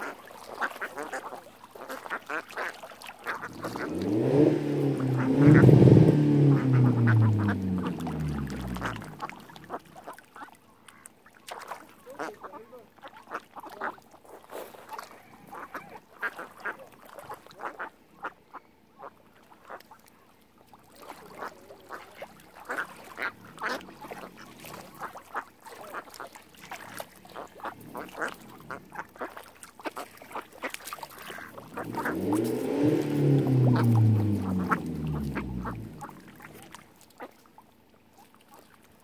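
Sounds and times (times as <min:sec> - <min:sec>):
ducks quacking: 0:00.0 - 0:14.2, 0:14.8 - 0:19.9, 0:21.0 - 0:37.4
low droning with sliding pitch: 0:03.5 - 0:09.6, 0:31.6 - 0:36.8.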